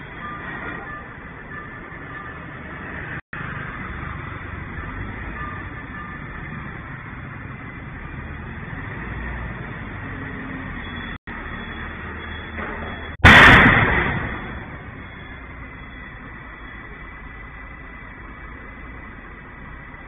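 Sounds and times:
street traffic: 0:00.0 - 0:20.0
loud bang: 0:12.5 - 0:15.5.

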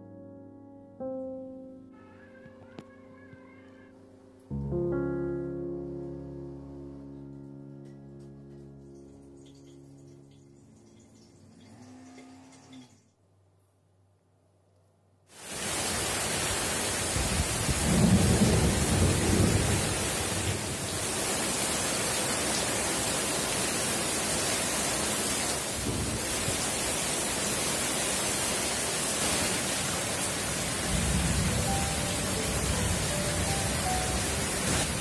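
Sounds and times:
heavy rain pouring: 0:15.3 - 0:35.0
thunder rumbling: 0:17.2 - 0:21.1.

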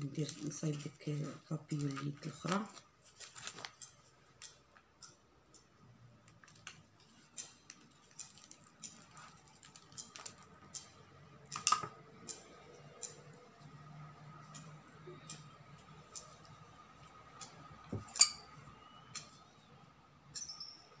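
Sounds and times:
hands crinkling ribbon: 0:00.0 - 0:04.9, 0:06.2 - 0:10.9.

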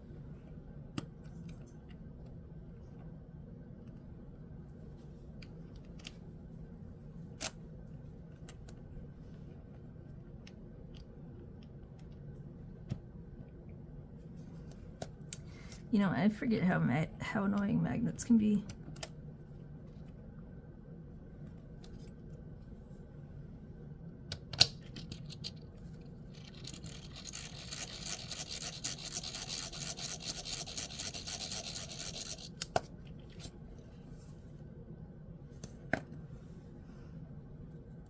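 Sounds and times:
scratchy rubbing: 0:26.4 - 0:32.5.

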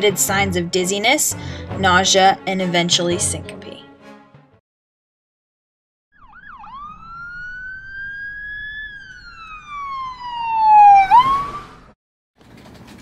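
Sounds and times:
emergency vehicle siren wailing: 0:06.1 - 0:12.0.

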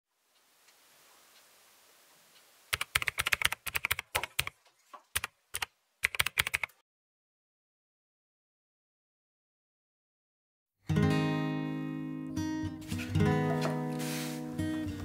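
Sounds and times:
keyboard typing: 0:02.7 - 0:06.8.

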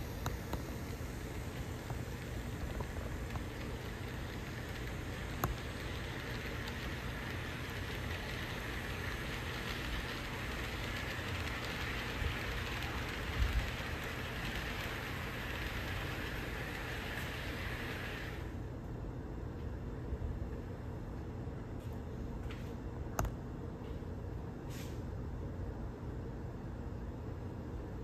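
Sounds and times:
model train wheels on rails: 0:00.0 - 0:18.6.

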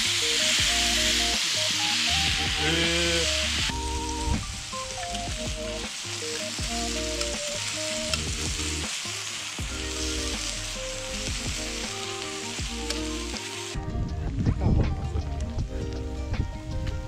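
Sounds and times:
meat and vegetables sizzling: 0:00.0 - 0:13.9
background music: 0:00.0 - 0:17.0.

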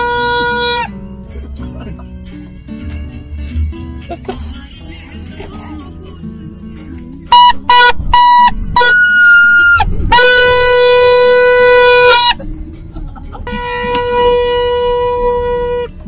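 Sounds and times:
plastic trumpet horn blasts: 0:00.0 - 0:01.0, 0:07.3 - 0:12.4, 0:13.4 - 0:16.0.

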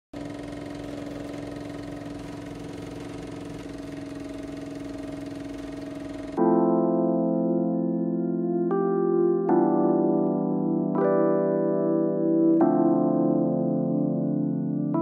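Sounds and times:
film projector whirring: 0:00.1 - 0:06.4
electric piano music: 0:00.2 - 0:15.0.

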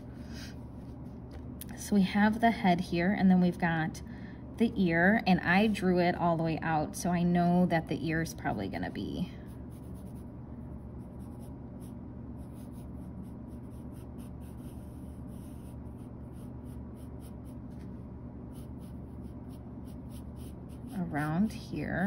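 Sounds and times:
low hum: 0:00.0 - 0:22.0
pencil scratching on paper: 0:09.7 - 0:10.2, 0:11.0 - 0:17.6, 0:18.5 - 0:21.5.

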